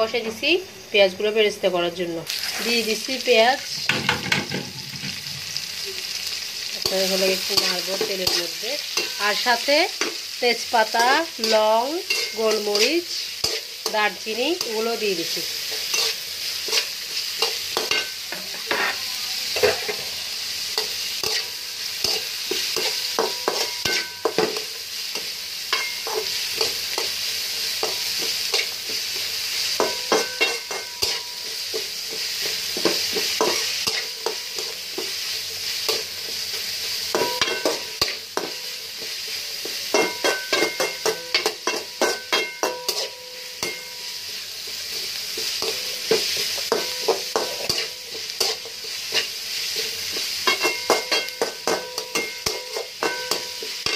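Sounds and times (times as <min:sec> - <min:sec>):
onions sizzling in hot oil: 0:00.0 - 0:53.9
spatula scraping metal pan: 0:15.7 - 0:19.9, 0:40.0 - 0:43.8.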